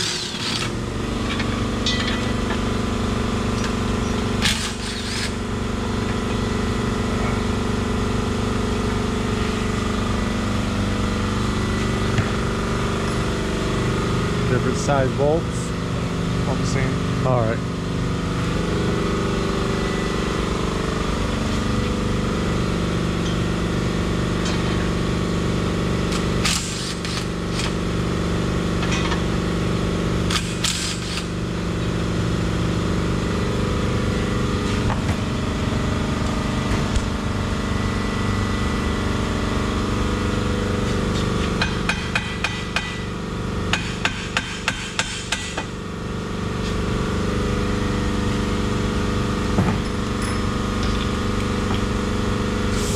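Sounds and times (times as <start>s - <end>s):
steady mechanical hum: 0.0s - 52.9s
quick ratchet clicks: 4.4s - 5.4s, 30.3s - 31.3s
metallic tool clinks: 50.2s - 50.9s.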